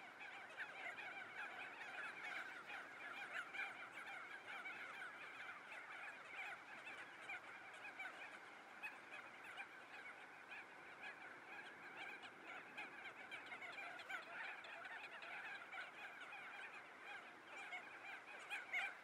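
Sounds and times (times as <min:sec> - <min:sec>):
flock of birds calling: 0:00.0 - 0:19.0.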